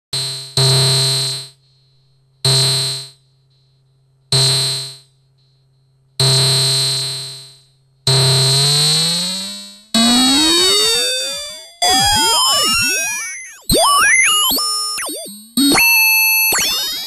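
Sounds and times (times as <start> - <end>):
buzzy electronic tones: 10.0 - 17.0.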